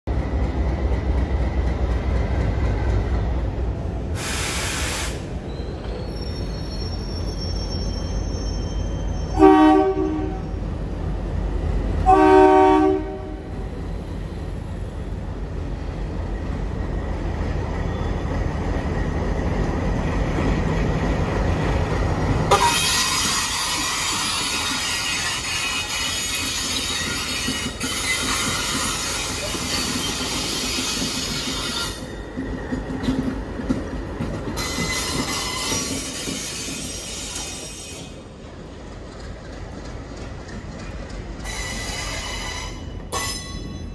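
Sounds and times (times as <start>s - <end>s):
diesel locomotive engine rumble: 0.1s - 43.9s
air hiss: 4.1s - 5.4s
train horn blasts: 9.3s - 10.6s, 12.0s - 13.6s, 22.5s - 23.7s.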